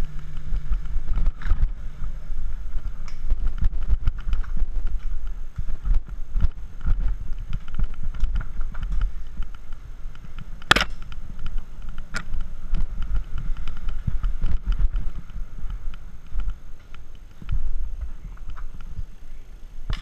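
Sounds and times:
wind and road rumble: 0.0s - 20.0s.

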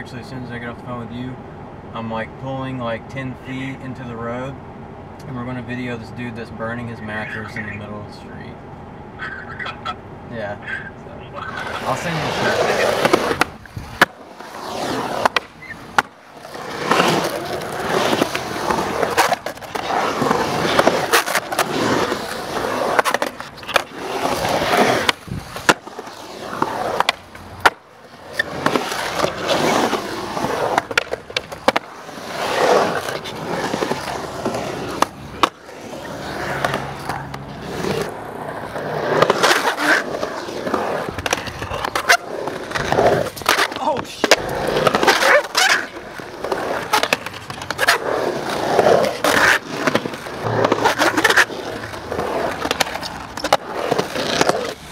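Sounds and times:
skateboards rolling on concrete: 0.0s - 54.9s
skateboard clacks popping and landing: 12.6s - 54.9s.

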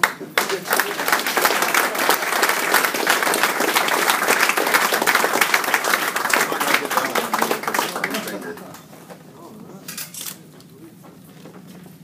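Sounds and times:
crowd applauding: 0.0s - 8.9s.

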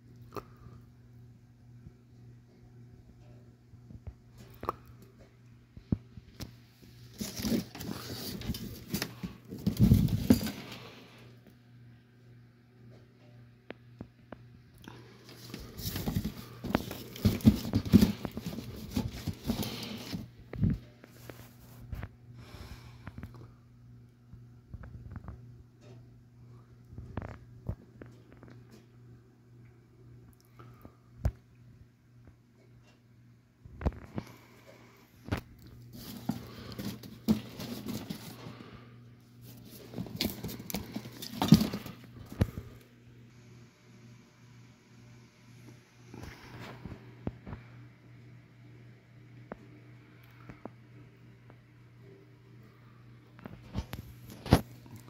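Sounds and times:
low steady hum: 0.0s - 55.0s
cardboard box being handled: 7.1s - 10.7s, 15.2s - 20.3s, 35.9s - 38.5s, 39.4s - 42.4s.

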